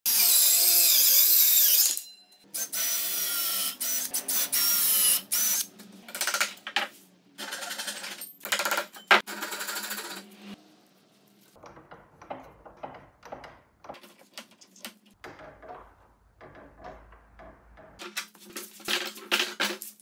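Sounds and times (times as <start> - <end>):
circular saw cutting wood: 0.1 - 2.0.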